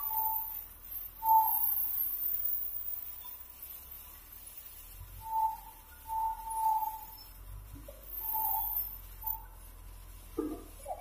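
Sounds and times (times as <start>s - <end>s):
faint high-pitched hiss: 0.0s - 11.0s
short whistling tone: 5.2s - 7.4s, 8.1s - 9.6s.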